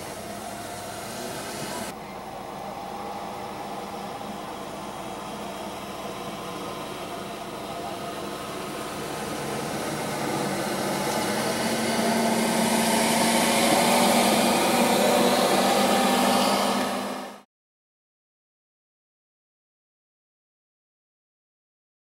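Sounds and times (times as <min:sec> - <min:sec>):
truck diesel engine running: 0:00.0 - 0:17.4.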